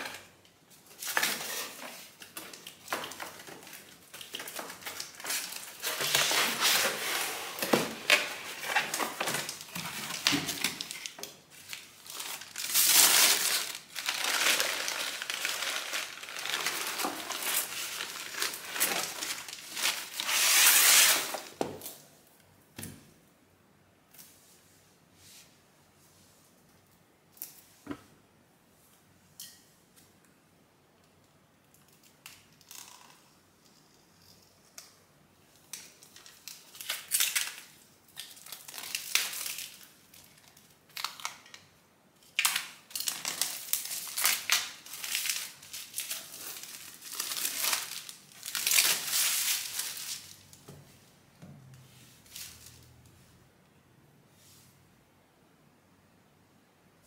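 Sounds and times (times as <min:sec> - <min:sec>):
plastic shrink-wrap tearing: 0:00.9 - 0:21.5, 0:35.7 - 0:41.7, 0:42.3 - 0:50.5.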